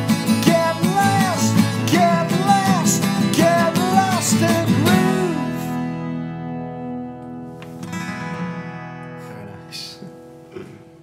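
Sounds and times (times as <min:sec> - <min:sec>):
acoustic guitars strummed: 0:00.0 - 0:11.0
person singing wordless phrases: 0:00.3 - 0:05.8.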